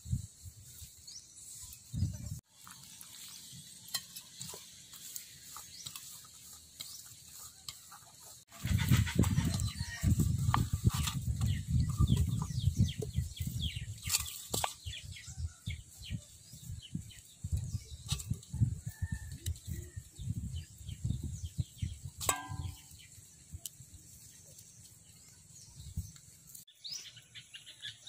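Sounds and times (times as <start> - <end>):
hands mixing flour in bowl: 0.2 - 20.1
birds chirping: 0.6 - 28.0.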